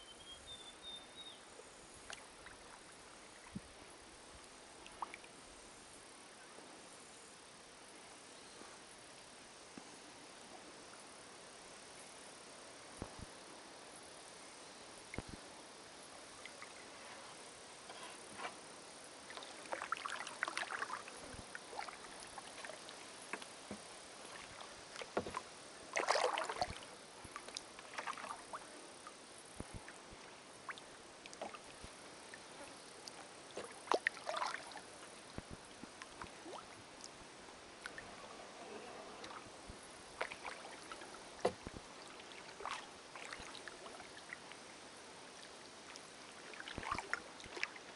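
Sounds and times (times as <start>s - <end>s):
paddle splashes and drips: 2.0s - 5.6s, 16.3s - 47.9s.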